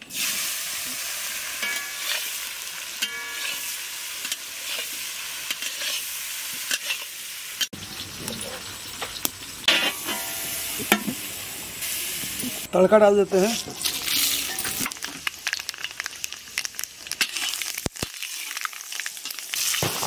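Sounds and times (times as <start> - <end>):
food sizzling in hot oil: 0.0 - 20.0
metal spatula scraping pan: 1.3 - 7.7, 9.7 - 11.2, 13.5 - 14.9.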